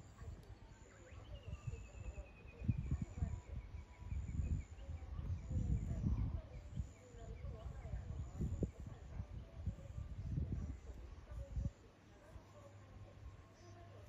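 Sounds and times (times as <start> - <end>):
bird chirping: 0.1 - 8.8.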